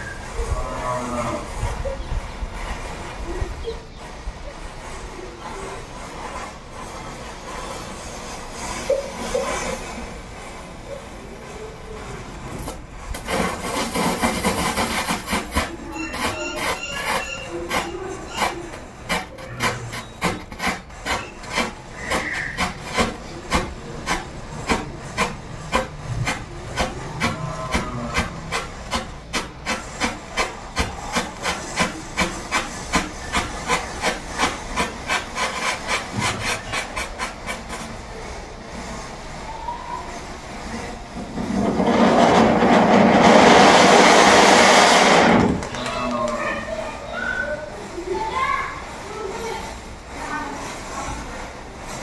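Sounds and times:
loud rushing hiss: 18.6 - 52.0.

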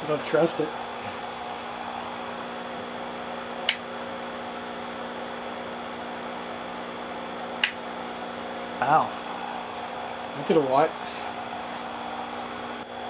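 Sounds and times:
power supply electrical hum: 0.0 - 13.0
sharp click: 3.6 - 3.8, 7.6 - 7.8.

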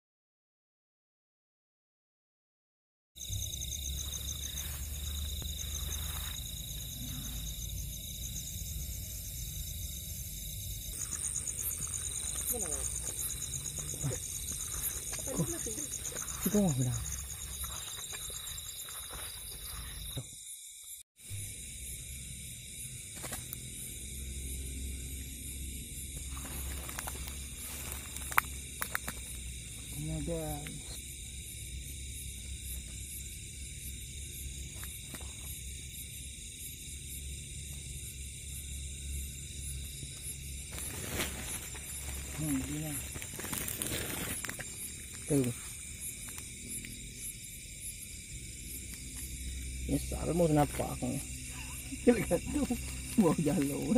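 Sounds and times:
crickets chirring: 3.2 - 53.9
night insects trilling: 3.2 - 53.9
net rustling in dry grass: 4.0 - 6.8, 26.2 - 28.5, 40.7 - 45.2.

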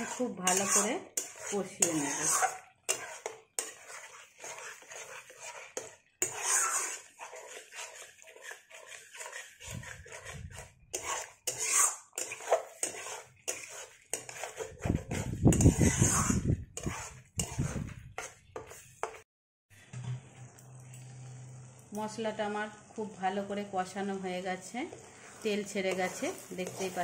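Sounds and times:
spatula scraping metal pan: 0.0 - 19.2, 24.9 - 27.0.

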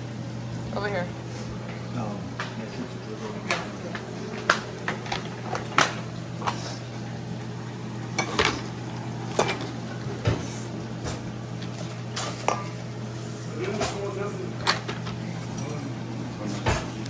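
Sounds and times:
steady low hum: 0.0 - 17.0
utensils and dishes clinking: 3.3 - 6.7, 8.1 - 17.0.

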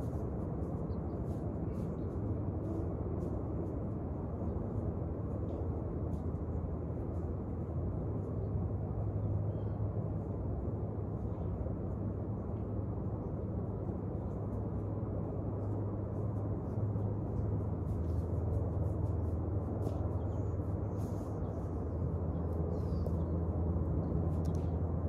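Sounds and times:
low outdoor rumble: 0.0 - 25.0
faint light clicks: 24.3 - 24.8.

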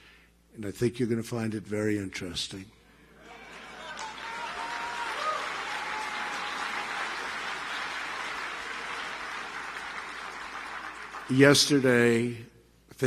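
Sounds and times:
audience applauding and cheering: 3.2 - 12.0.

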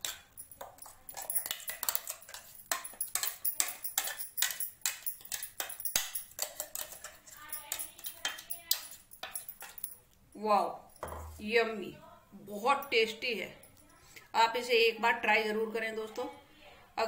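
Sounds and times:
knife scraping metal jar: 0.0 - 9.8.

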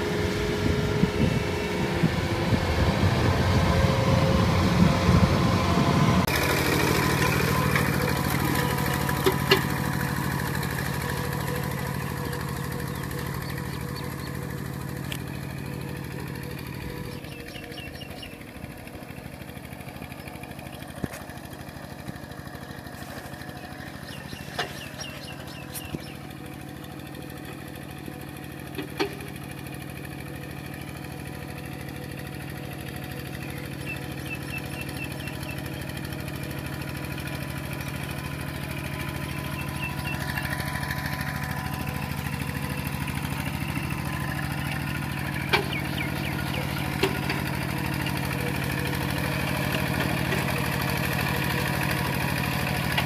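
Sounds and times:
combine harvester engine: 0.0 - 53.0
walking tractor engine running: 0.0 - 53.0.

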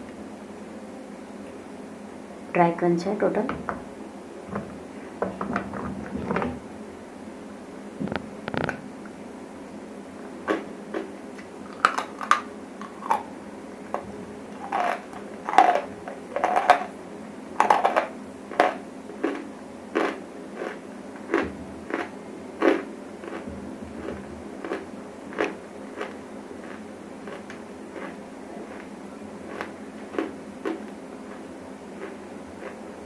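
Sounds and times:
chewing crunchy clay: 10.4 - 17.0, 17.6 - 33.0.

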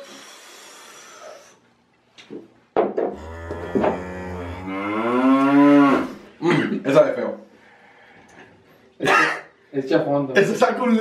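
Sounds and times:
breathy hiss: 0.0 - 1.7
deep low growl: 3.2 - 6.2
men groaning: 3.2 - 6.2.

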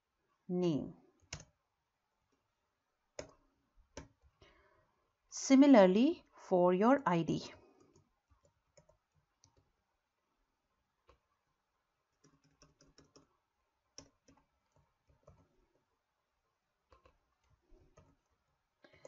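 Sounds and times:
faint keyboard typing: 1.0 - 1.6, 3.1 - 4.6, 7.6 - 9.8, 11.0 - 11.4, 12.0 - 15.9, 16.8 - 19.0.

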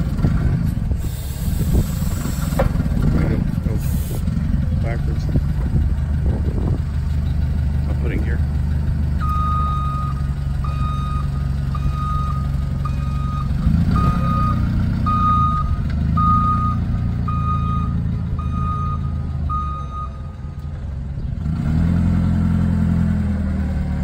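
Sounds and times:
forklift engine running: 0.0 - 24.0
backup alarm beeping: 9.2 - 20.3.

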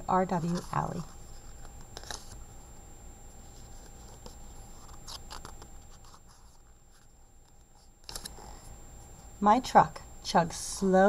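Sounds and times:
paper page turning: 0.3 - 2.4, 3.4 - 8.4.

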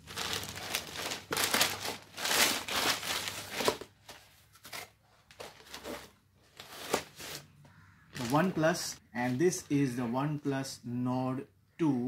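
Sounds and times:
plastic bag tearing and crinkling: 0.0 - 3.9, 8.2 - 8.6.

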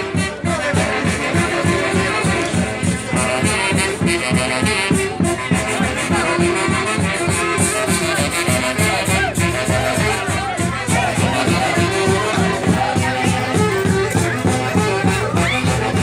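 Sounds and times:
festive band music: 0.0 - 16.0.

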